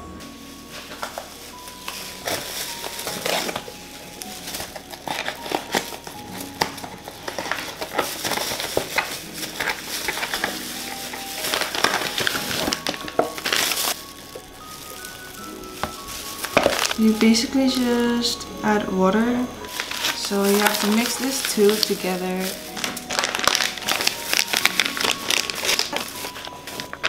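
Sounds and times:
background music: 0.0s - 27.0s
plastic packets crinkling: 0.0s - 27.0s
cardboard box opening: 4.4s - 14.0s, 19.7s - 27.0s.

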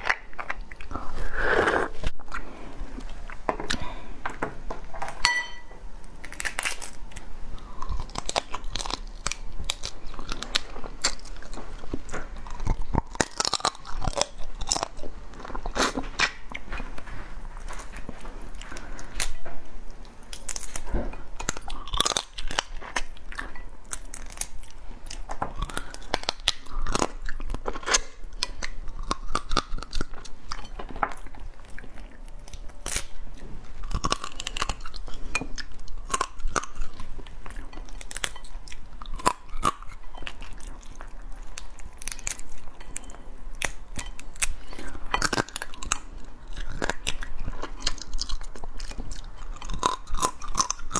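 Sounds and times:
chewing: 5.6s - 50.9s
crab shell cracking and crunching: 6.1s - 16.6s, 20.2s - 33.2s, 33.8s - 50.9s.

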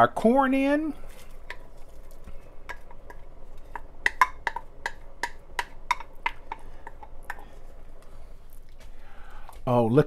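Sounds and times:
wooden spoon knocking against pot: 2.7s - 7.4s.

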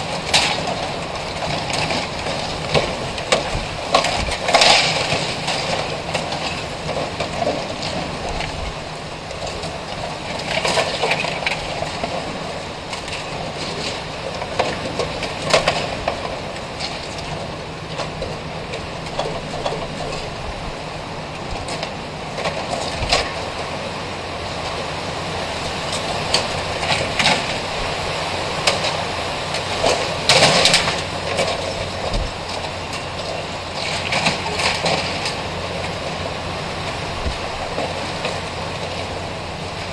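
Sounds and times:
strong wind blowing: 18.8s - 34.5s, 35.3s - 39.8s.

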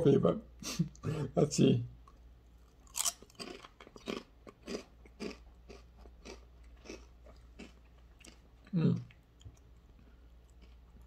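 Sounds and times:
potato chip crunching: 2.7s - 8.4s.

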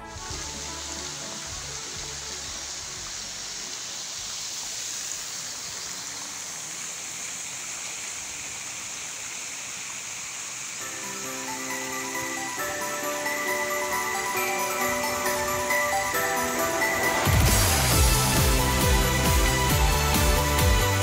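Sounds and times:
falling water rushing: 0.0s - 21.0s.

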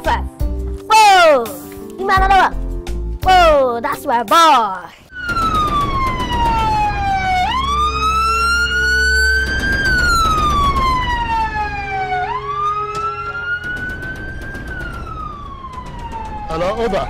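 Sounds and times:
ambulance siren wailing: 5.1s - 17.0s
low vehicle rumble: 5.2s - 17.0s.

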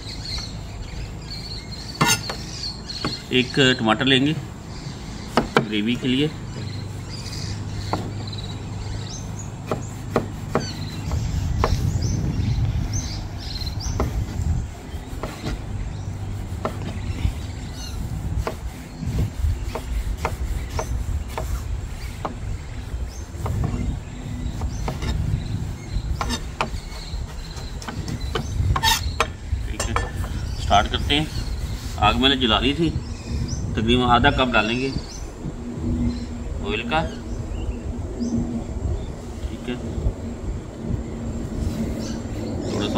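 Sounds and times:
knife chopping on plastic board: 9.6s - 11.8s.

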